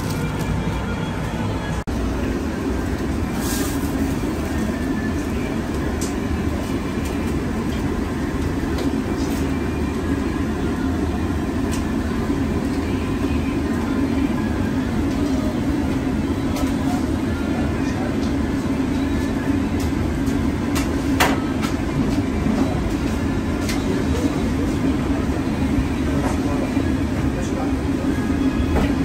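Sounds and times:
shop and street background roar: 0.0 - 29.0.

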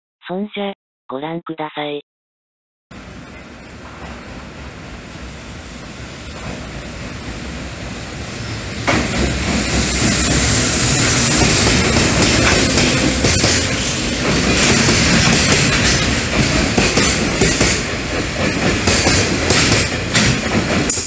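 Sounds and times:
freight train passing: 2.9 - 21.0
hiss: 9.4 - 11.6.

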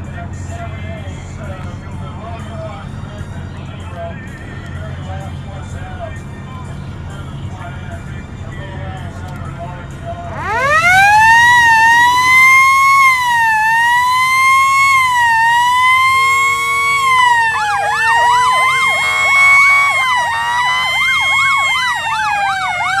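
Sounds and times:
siren wailing: 10.3 - 23.0
siren yelping: 10.3 - 23.0.

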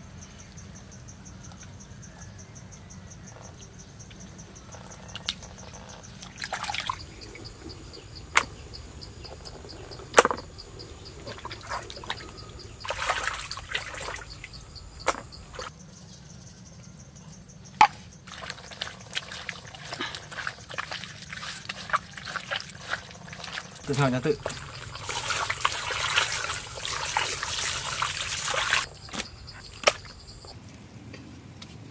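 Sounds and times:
crickets chirping: 0.0 - 31.9
wet squelches: 4.7 - 15.7, 18.2 - 30.6
small wet crackling: 5.1 - 15.7, 18.3 - 30.6
water splashing: 6.1 - 15.7, 18.3 - 30.5.

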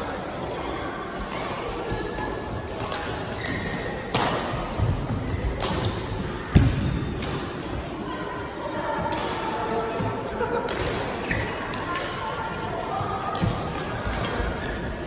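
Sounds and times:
racket hitting shuttlecock: 2.8 - 4.6, 5.5 - 7.8.

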